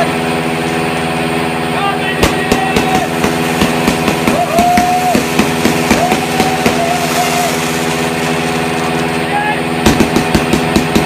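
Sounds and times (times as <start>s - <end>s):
motorcycle engine running: 0.0s - 11.0s
firecrackers popping: 2.2s - 11.0s.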